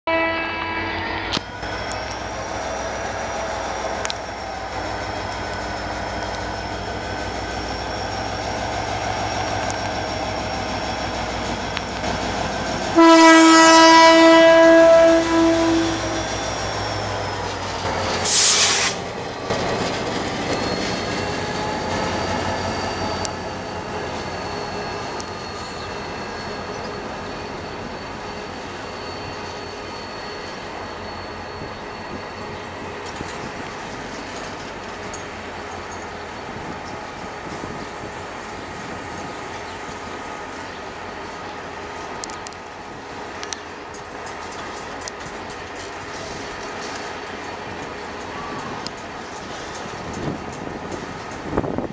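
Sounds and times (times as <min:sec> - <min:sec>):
locomotive horn blast: 0:00.1 - 0:01.2, 0:13.0 - 0:16.3
diesel locomotive engine running: 0:01.0 - 0:51.9
train wheels clicking over rail joints: 0:16.0 - 0:27.3, 0:32.6 - 0:40.6, 0:43.4 - 0:51.9
brief hiss: 0:18.2 - 0:19.0.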